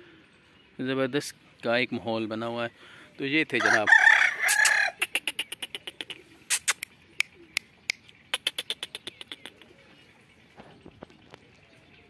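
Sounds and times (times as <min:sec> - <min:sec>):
rooster crowing: 0:03.6 - 0:05.0
short sharp clicks: 0:06.5 - 0:09.6.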